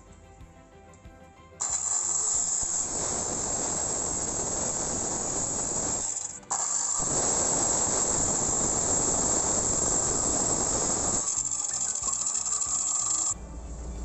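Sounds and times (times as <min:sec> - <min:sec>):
miter saw cutting wood: 0:01.6 - 0:13.4.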